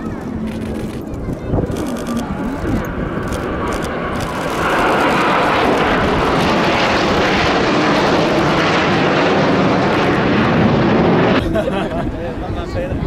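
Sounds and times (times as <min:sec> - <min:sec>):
fighter jets flying over: 0:00.0 - 0:13.0.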